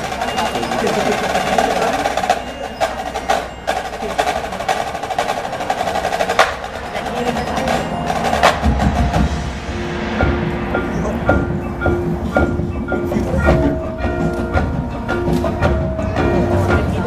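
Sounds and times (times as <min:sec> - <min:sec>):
marching band playing: 0:00.0 - 0:17.0
deep low sound: 0:07.6 - 0:16.4.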